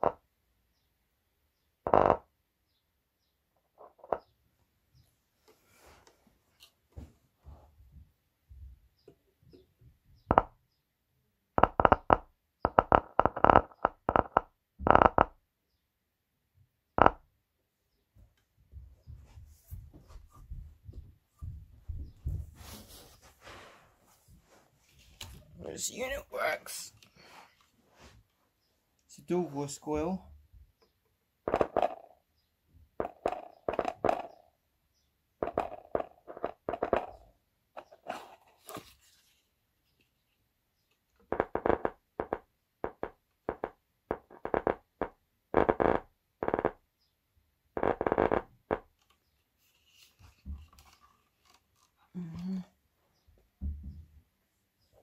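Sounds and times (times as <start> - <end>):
subwoofer popping and crackling: 1.9 - 2.3, 10.2 - 10.5, 11.6 - 15.4, 17.0 - 17.2, 31.5 - 32.0, 33.0 - 34.4, 35.4 - 37.2, 41.3 - 46.8, 47.8 - 48.9.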